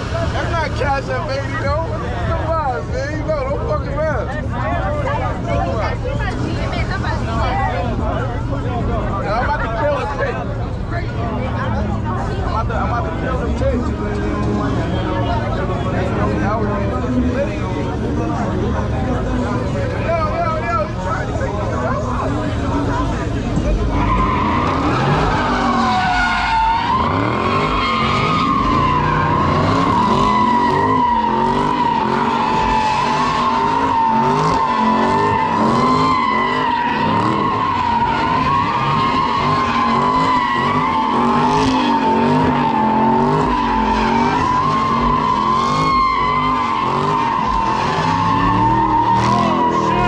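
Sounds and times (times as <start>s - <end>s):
car engine revving: 0.0s - 50.0s
tyre squeal: 23.8s - 50.0s.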